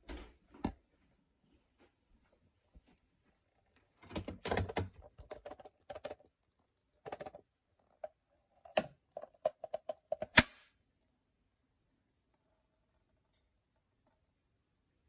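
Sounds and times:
plastic clicks and snap: 8.7s - 10.7s.

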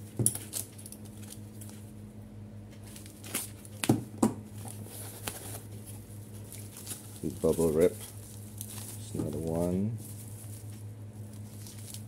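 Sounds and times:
low steady hum: 0.0s - 12.0s
foam sheet crinkling: 4.5s - 12.0s.

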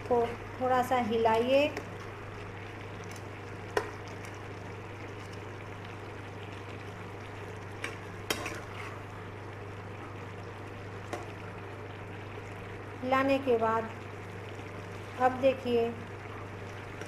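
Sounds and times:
curry bubbling in a pan: 0.0s - 17.0s.

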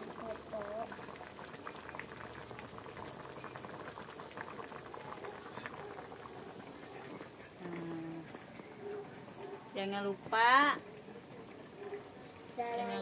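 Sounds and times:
soup boiling with popping bubbles: 0.0s - 8.7s.

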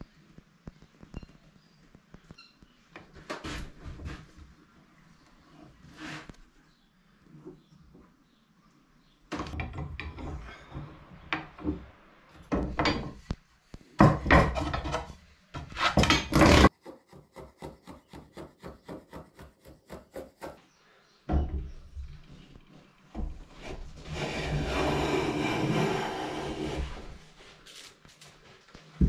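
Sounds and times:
wood knocking and scraping: 9.3s - 13.4s, 14.0s - 16.7s.

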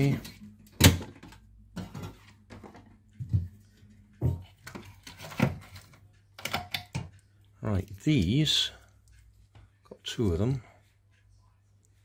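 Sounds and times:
knocks and clatters of items: 0.0s - 7.2s.

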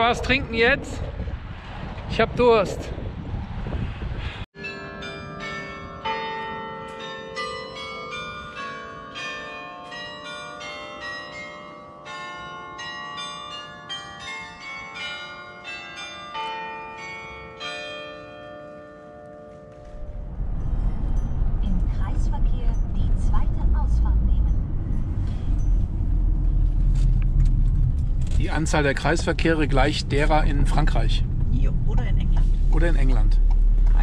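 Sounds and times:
church bells ringing: 4.6s - 26.7s.

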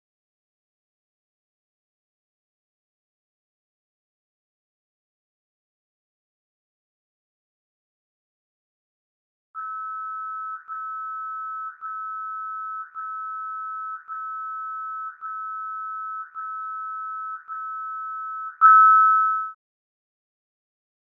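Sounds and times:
two-note electronic alarm beeps: 9.6s - 19.6s.

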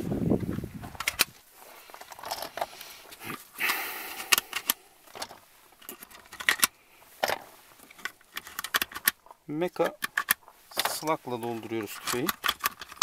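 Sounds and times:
rattling rustle: 0.0s - 13.0s
metallic clicks and clinks: 9.8s - 13.0s.

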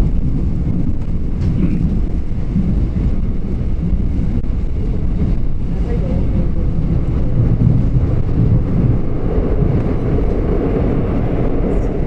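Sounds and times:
train rumbling on rails: 0.0s - 12.0s.

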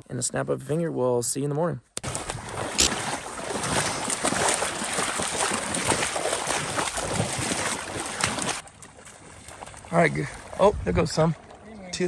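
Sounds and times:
sloshing steps in water: 2.0s - 11.6s.

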